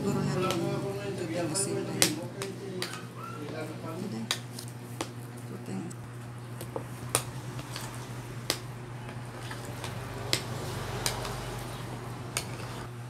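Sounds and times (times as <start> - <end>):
thick filling squishing: 6.5 - 12.8.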